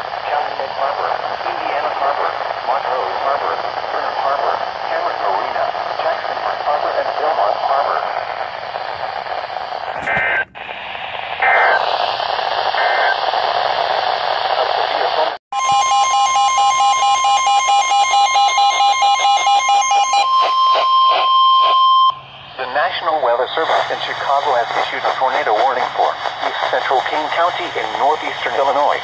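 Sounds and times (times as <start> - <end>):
radio static hiss: 0.0 - 15.4, 20.4 - 29.0
fast pulsing beep: 15.6 - 22.7.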